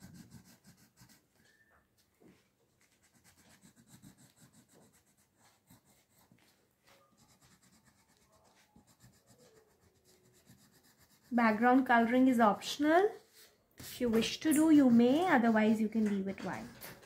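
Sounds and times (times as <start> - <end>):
crayon scratching on paper: 0.0 - 1.4, 2.8 - 17.0.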